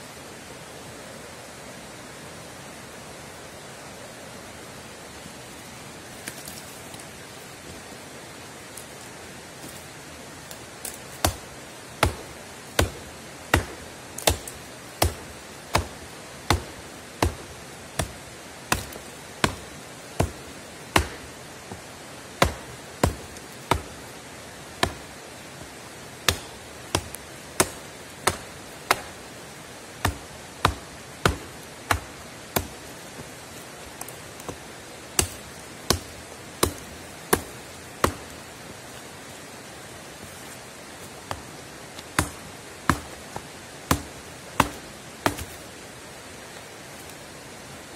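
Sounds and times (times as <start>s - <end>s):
steady hiss: 0.0s - 47.9s
axe chopping log: 10.8s - 24.0s, 24.7s - 25.2s, 26.2s - 29.2s, 30.0s - 34.6s, 35.2s - 38.4s, 41.3s - 45.6s.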